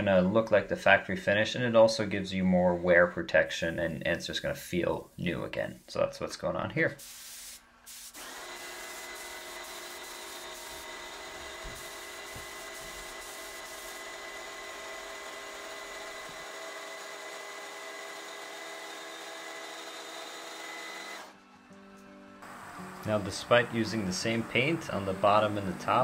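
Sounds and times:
heat gun running: 7.1 - 21.4.

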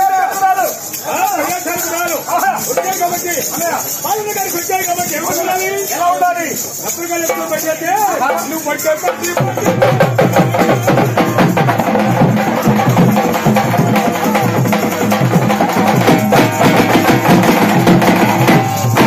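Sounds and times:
hand drums beating fast: 0.8 - 19.0.

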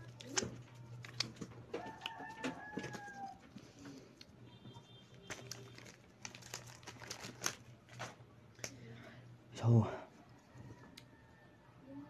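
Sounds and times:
plastic wrapper crinkling: 0.0 - 4.3, 5.0 - 8.8.

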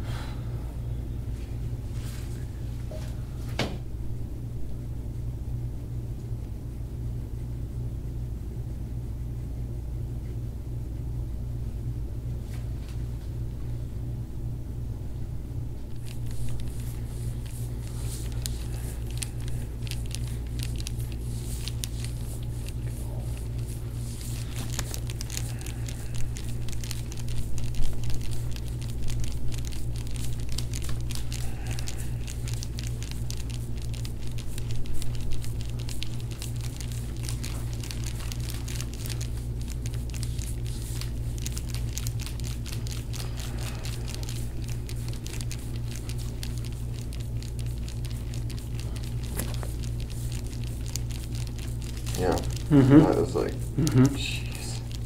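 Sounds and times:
steady low hum: 0.0 - 55.0
crinkling rustle: 15.8 - 55.0.

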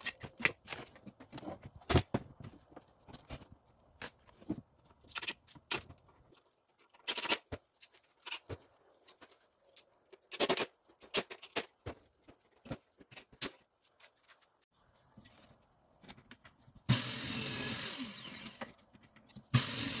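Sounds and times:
rattles of parts: 0.0 - 14.6.

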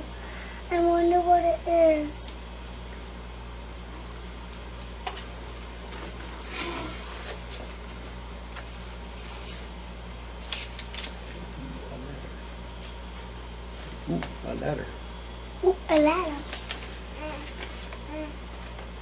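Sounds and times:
paper and cardboard rustling: 15.9 - 19.0.

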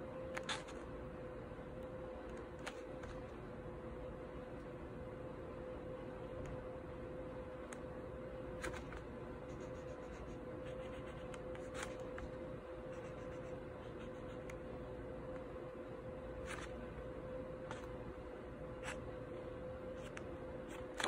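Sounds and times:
steady hum: 0.0 - 21.0
pen scratching on paper: 8.6 - 12.2, 12.9 - 14.5.

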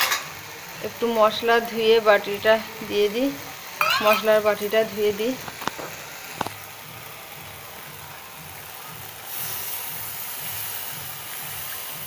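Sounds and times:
curry sizzling in wok: 0.0 - 12.0
metal clink: 3.8 - 4.8
water poured into hot pan: 5.4 - 12.0.

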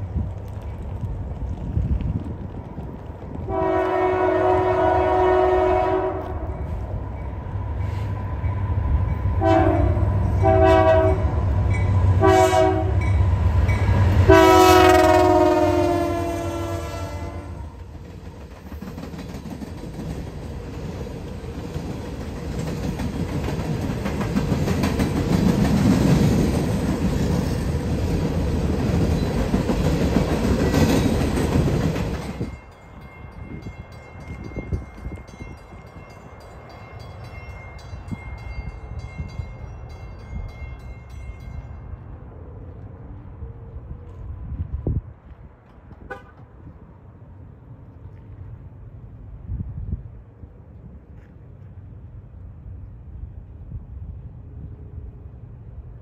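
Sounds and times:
train rumble and wheel clatter: 0.0 - 56.0
locomotive horn blasts: 3.5 - 6.6, 9.4 - 11.4, 12.2 - 13.1, 14.3 - 17.8, 46.0 - 46.5.

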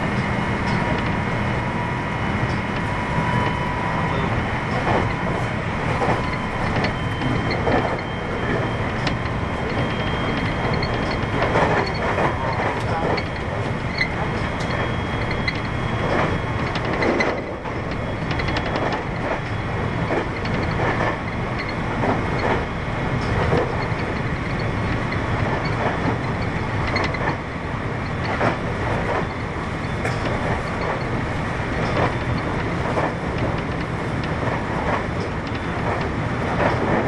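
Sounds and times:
train wheels rumbling on rails: 0.0 - 37.0
track clicks: 0.1 - 1.4, 2.4 - 27.4.

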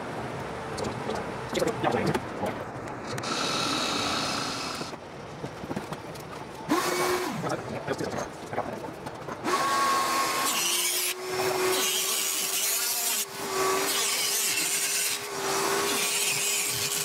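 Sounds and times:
rotary tool grinding: 3.0 - 5.0, 9.4 - 17.0
vacuum hose humming: 3.1 - 5.0.

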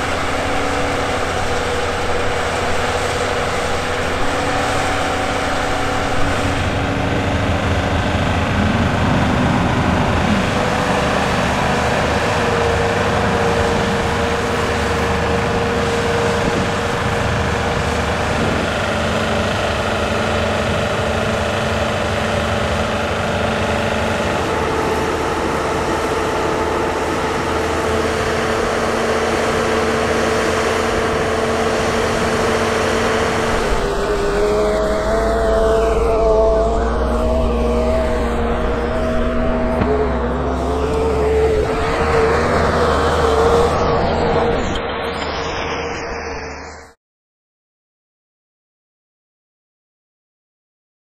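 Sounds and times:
heavy engine running: 0.0 - 47.0
whine changing pitch: 0.0 - 47.0.

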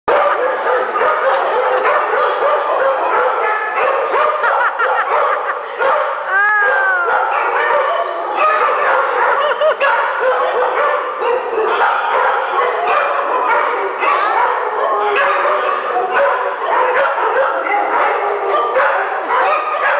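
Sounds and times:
dogs barking and yipping: 0.1 - 19.9.

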